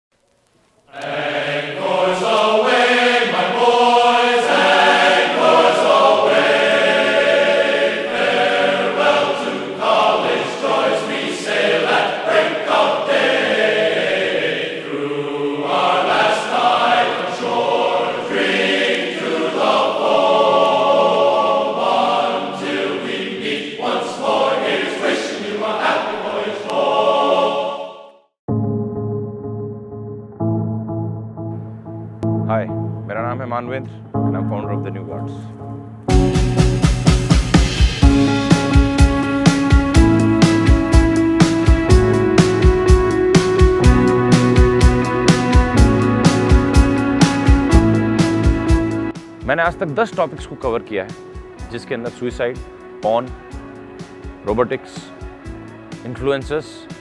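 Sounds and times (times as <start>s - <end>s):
choir singing long held notes: 0.9s - 28.3s.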